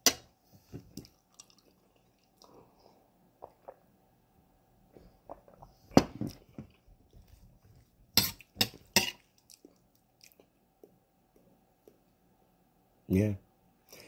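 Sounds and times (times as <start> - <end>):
soft chewing: 0.7 - 3.9, 5.0 - 12.1.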